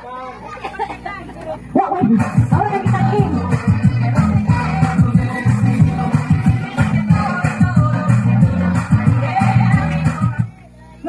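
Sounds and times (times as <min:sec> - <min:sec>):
loud dance music with heavy bass: 0:01.8 - 0:10.5.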